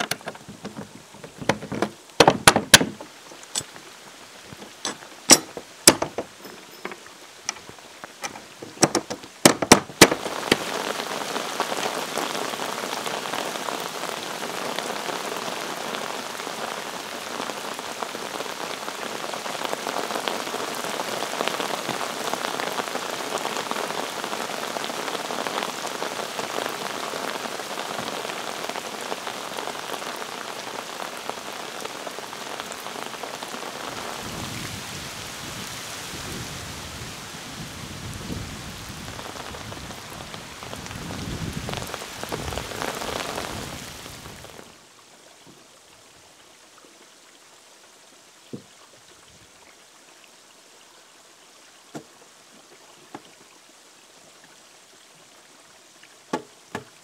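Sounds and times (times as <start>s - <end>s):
steel strap knocking wooden door: 0.0s - 3.1s, 4.9s - 7.6s, 8.2s - 10.2s
rain on pond and decking: 0.0s - 57.0s.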